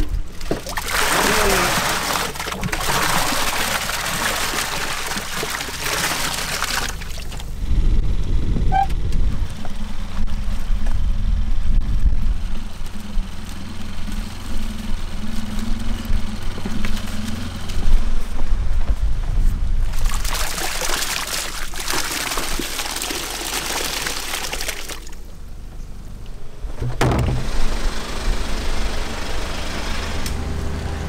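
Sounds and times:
low motor rumble: 0:00.0 - 0:31.0
water splashing and pouring: 0:00.3 - 0:07.6, 0:19.9 - 0:25.4.

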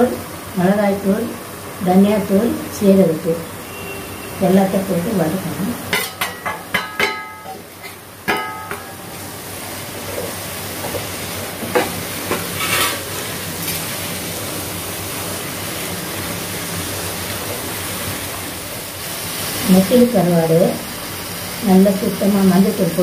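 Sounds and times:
food sizzling in a pan: 0:00.0 - 0:23.0
spatula clinking against pan: 0:05.9 - 0:07.6, 0:08.3 - 0:09.0
spatula scraping pan: 0:11.7 - 0:13.2.

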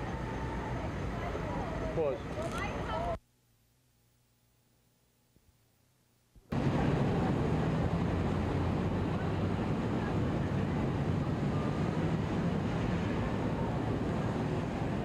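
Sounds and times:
low rumble of traffic: 0:00.0 - 0:03.2, 0:06.5 - 0:15.0.

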